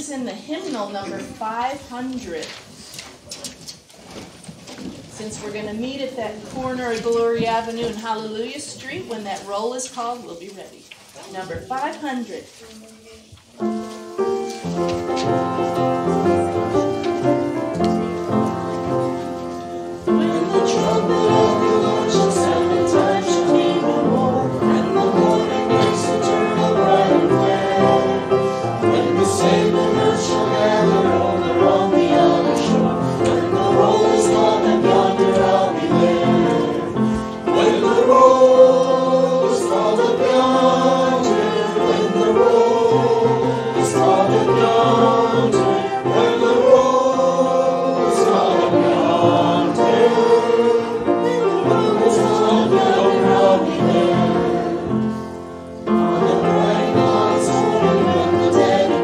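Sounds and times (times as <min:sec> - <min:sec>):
congregation singing a hymn: 0:13.6 - 0:59.0.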